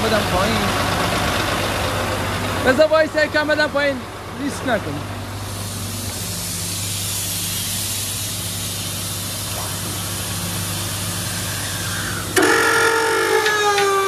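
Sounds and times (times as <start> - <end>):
truck engine running low: 0.0 - 14.0
air suspension valve hissing: 5.3 - 12.7.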